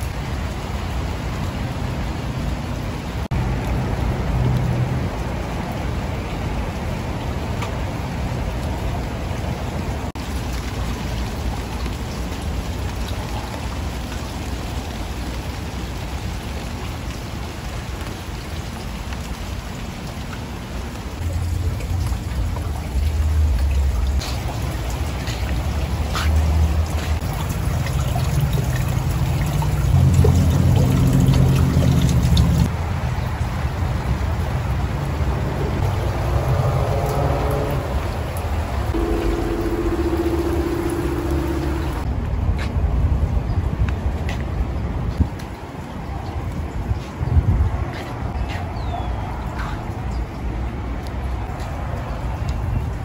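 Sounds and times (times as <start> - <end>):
rain falling on foliage: 0.0 - 53.0
low rushing: 35.2 - 42.2.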